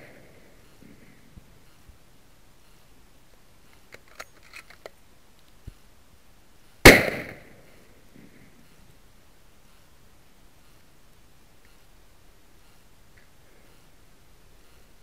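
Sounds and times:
rifle shot with echo: 0:00.0 - 0:01.1, 0:06.8 - 0:07.8
rifle handling clicks: 0:03.7 - 0:05.6.

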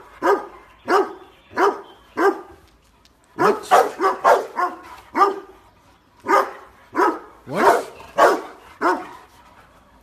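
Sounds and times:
dog barking: 0:00.2 - 0:02.5, 0:03.4 - 0:05.5, 0:06.2 - 0:09.2.

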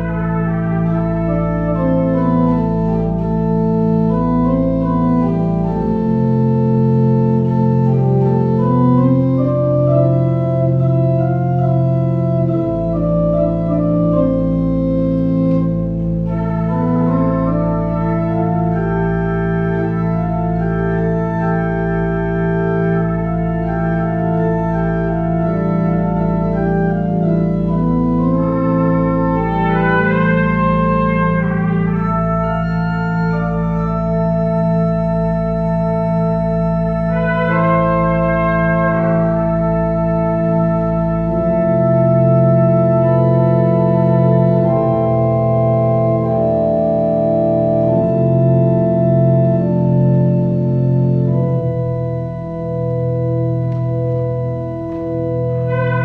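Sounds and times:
deep organ bass note: 0:00.0 - 0:56.0
organ playing sustained chords: 0:00.0 - 0:56.0.

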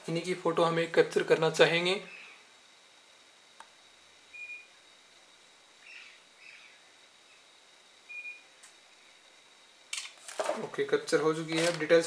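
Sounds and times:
bird chirps: 0:05.8 - 0:06.8.

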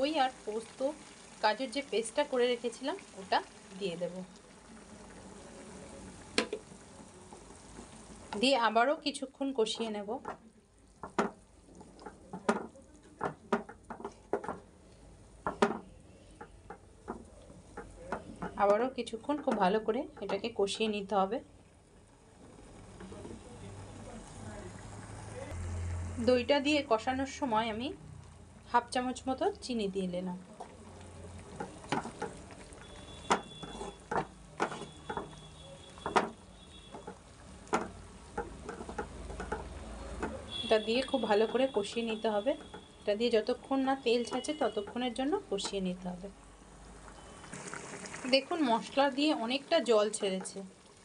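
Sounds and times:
wooden spatula scraping a pan: 0:15.4 - 0:18.7, 0:31.4 - 0:43.0
wooden spatula scraping pan: 0:33.1 - 0:40.4.

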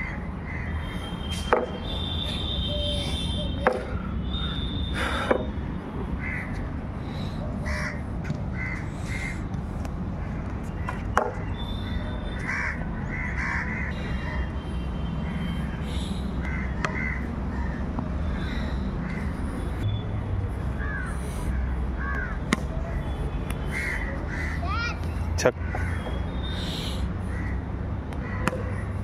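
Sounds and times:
crows cawing: 0:00.0 - 0:00.8, 0:06.2 - 0:06.7, 0:07.6 - 0:09.5, 0:11.7 - 0:14.5, 0:15.7 - 0:19.3, 0:20.8 - 0:22.4, 0:23.7 - 0:24.8, 0:25.6 - 0:27.6, 0:28.2 - 0:29.0.

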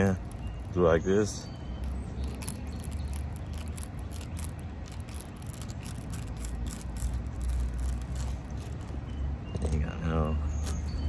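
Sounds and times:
steel tool rasping against rubber: 0:01.8 - 0:09.0.

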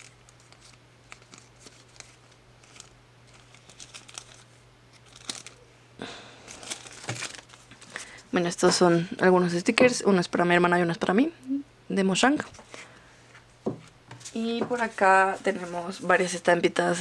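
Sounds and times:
plastic rustle: 0:00.0 - 0:05.6, 0:06.4 - 0:08.2
plastic sleeve crinkling: 0:00.0 - 0:05.7, 0:06.4 - 0:08.2
low electrical hum: 0:00.0 - 0:17.0.

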